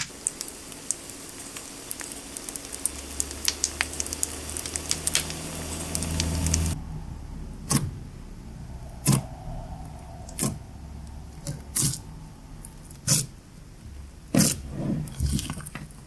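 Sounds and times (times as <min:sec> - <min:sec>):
fizzing liquid crackling: 0:00.0 - 0:06.8.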